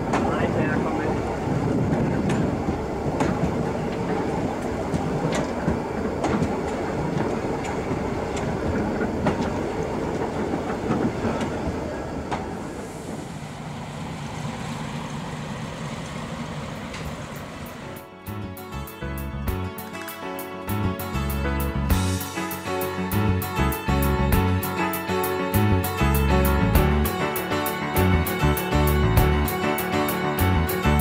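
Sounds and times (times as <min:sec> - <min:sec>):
wheels clicking over rail joints: 0:00.0 - 0:12.7, 0:14.3 - 0:18.1
diesel train running: 0:00.0 - 0:31.0.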